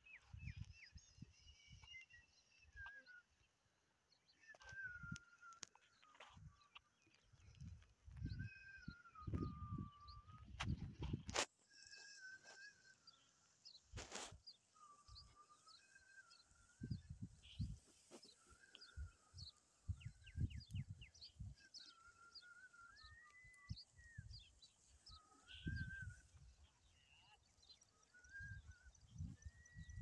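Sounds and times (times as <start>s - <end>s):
small birds chirping: 0.0s - 30.0s
thin wavering whistled note: 8.2s - 27.4s.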